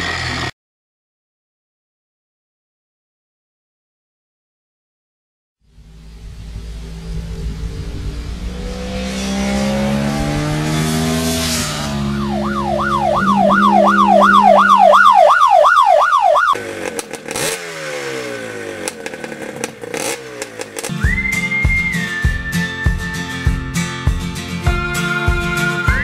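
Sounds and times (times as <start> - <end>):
motorcycle engine accelerating: 0.0 - 0.5, 5.6 - 26.0
warbling siren-like tone: 5.7 - 16.6.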